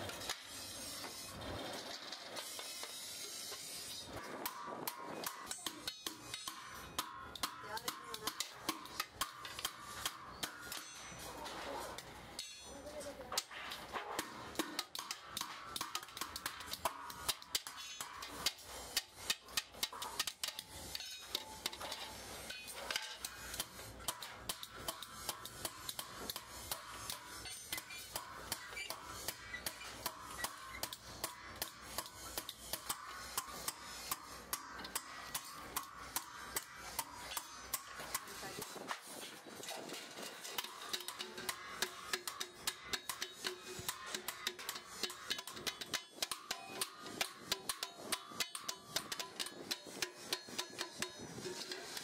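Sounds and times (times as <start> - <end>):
metal clinking and tapping: 39.3 - 52.0.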